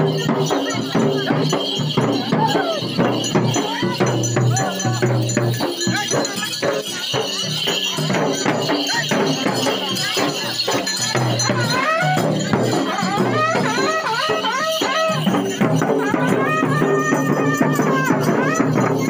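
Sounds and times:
continuous drumming: 0:00.0 - 0:19.0
jingling tambourine: 0:00.0 - 0:19.0
wind instrument wavering melody: 0:11.4 - 0:19.0.

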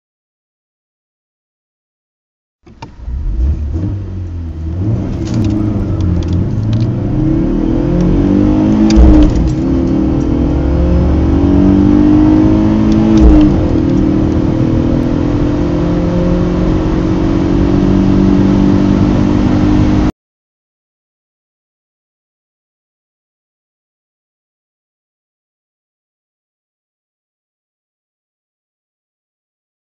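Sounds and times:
car engine accelerating: 0:02.7 - 0:20.1.

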